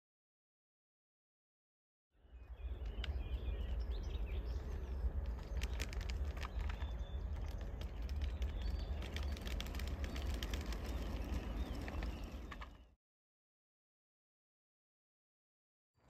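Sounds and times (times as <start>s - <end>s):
bird chirping: 2.2s - 13.0s
low rumble of train: 2.3s - 12.9s.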